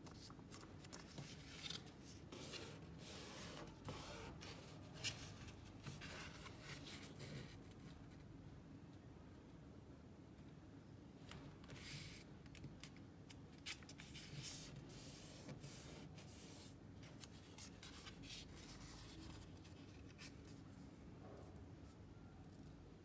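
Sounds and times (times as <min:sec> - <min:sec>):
paper rustling and crinkling: 0:00.0 - 0:07.5.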